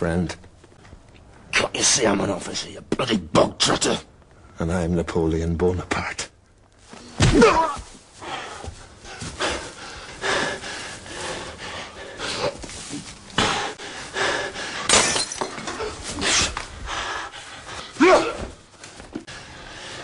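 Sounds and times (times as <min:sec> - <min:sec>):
fist blows and crashes: 0:07.2 - 0:07.9
men grunting and breathing hard: 0:07.4 - 0:15.0, 0:15.6 - 0:20.0.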